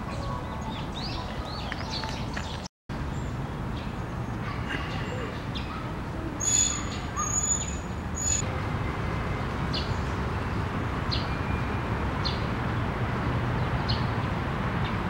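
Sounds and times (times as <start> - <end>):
short high bird chirps: 6.4 - 8.4.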